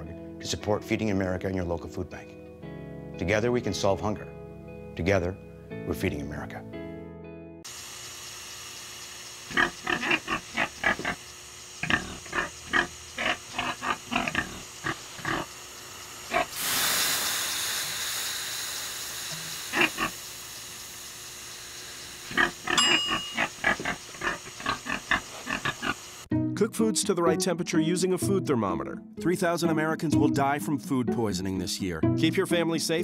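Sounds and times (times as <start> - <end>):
steam hissing on sauna stones: 7.7 - 26.3
pig grunting: 9.5 - 11.2, 11.8 - 15.5, 16.3 - 16.6, 19.7 - 20.1, 22.3 - 26.0.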